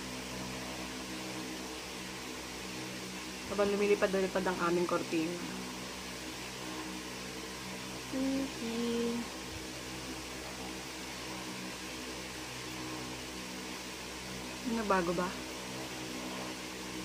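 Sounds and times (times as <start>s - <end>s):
electric fan humming: 0.0s - 17.0s
woman humming: 8.1s - 9.3s.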